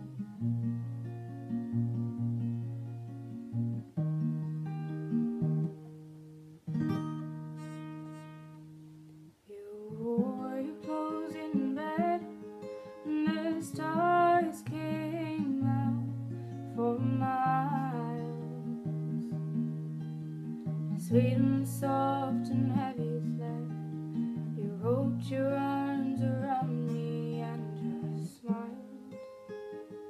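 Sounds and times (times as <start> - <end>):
acoustic guitar picked and strummed: 0.0 - 30.0
woman singing: 9.5 - 19.1, 20.9 - 29.2.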